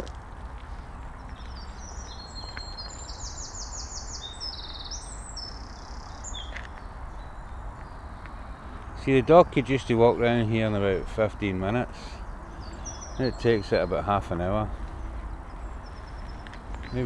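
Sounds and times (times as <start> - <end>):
songbird singing trills: 1.2 - 17.0.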